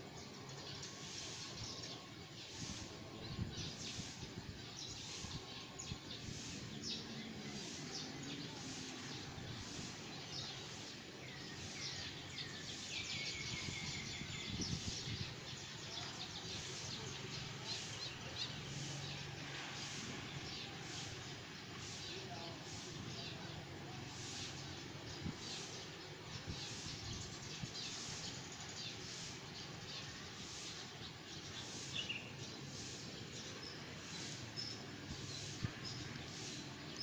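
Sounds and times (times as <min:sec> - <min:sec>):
small birds chirping: 0:00.0 - 0:37.0
steady background noise: 0:00.0 - 0:37.0.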